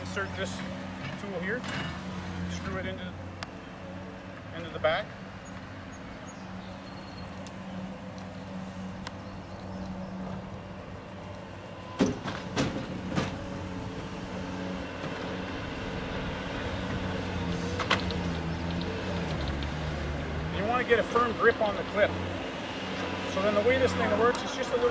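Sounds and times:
loader engine running: 0.0 - 24.9.

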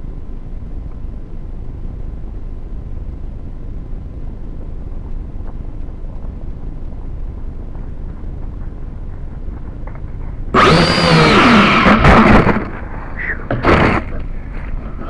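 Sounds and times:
low steady rumble: 0.0 - 15.0
drone propeller motors whining: 9.8 - 15.0.

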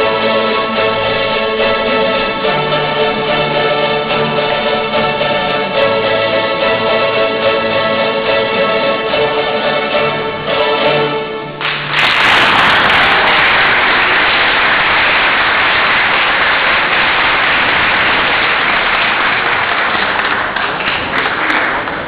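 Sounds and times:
audience applauding: 11.6 - 22.0.

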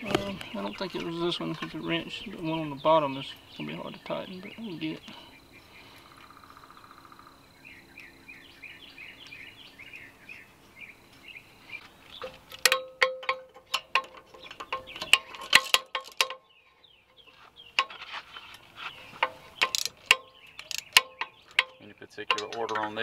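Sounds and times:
socket wrench clicking on metal: 12.5 - 16.4, 19.2 - 23.0.

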